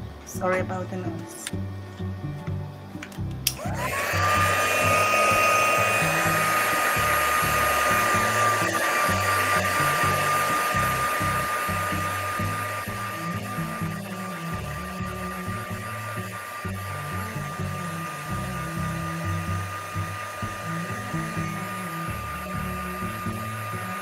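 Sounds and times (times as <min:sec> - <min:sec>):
background music: 0:00.0 - 0:24.0
heat gun switch click: 0:03.5 - 0:03.7
heat gun motor whine and air: 0:03.5 - 0:24.0.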